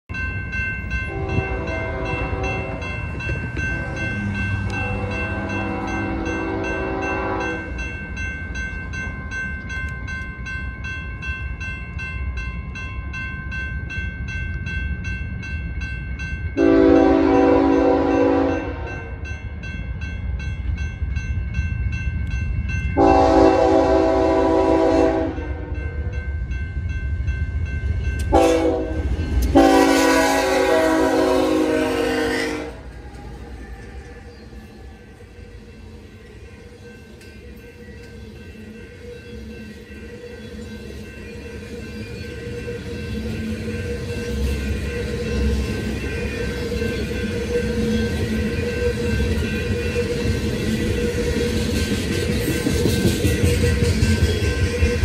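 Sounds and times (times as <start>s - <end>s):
train air horn blasts: 1.1s - 2.8s, 3.7s - 7.8s, 16.6s - 19.2s, 23.0s - 25.9s, 28.3s - 32.9s.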